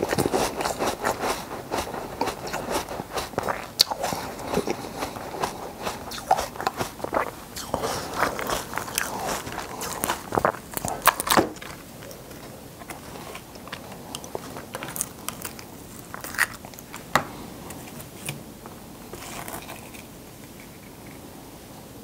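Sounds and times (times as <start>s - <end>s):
ice cubes crunching when chewed: 0.0s - 17.1s.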